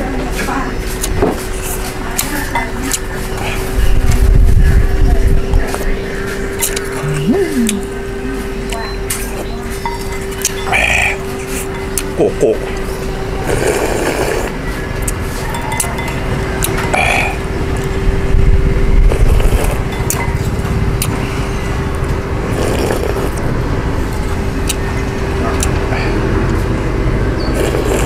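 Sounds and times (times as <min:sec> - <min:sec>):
steady hum: 0:00.0 - 0:28.0
noodles slurped: 0:13.4 - 0:15.2, 0:22.5 - 0:23.4, 0:27.5 - 0:28.0.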